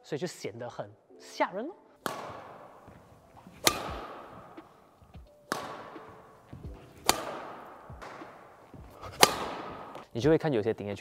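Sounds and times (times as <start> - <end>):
racket smashing shuttlecock: 2.0 - 10.1.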